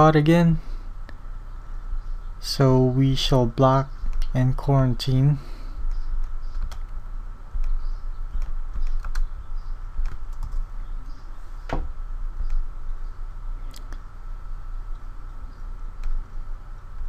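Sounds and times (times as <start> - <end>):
steady low hum: 0.0 - 17.0
keyboard and mouse clicks: 5.9 - 6.9.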